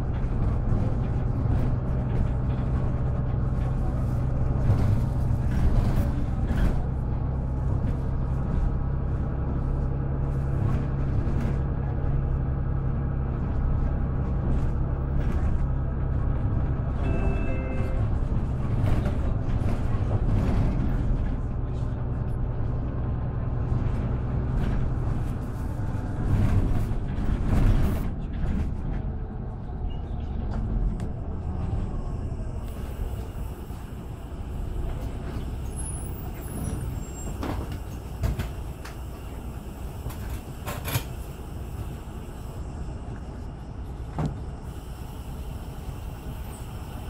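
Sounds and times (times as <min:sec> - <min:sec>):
bus diesel engine: 0:00.0 - 0:47.0.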